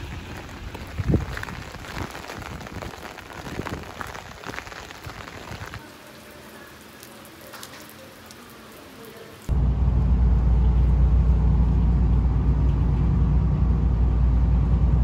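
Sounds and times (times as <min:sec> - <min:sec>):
rain drops falling: 0:00.0 - 0:09.6.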